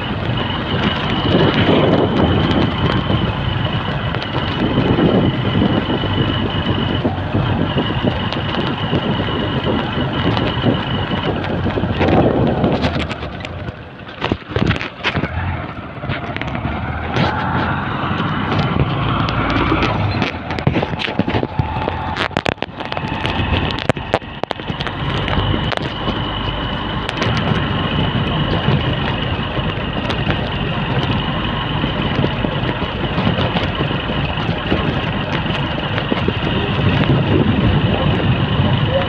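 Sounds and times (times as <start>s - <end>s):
motorcycle engine running: 0.0s - 39.0s
road and wind noise: 0.0s - 39.0s.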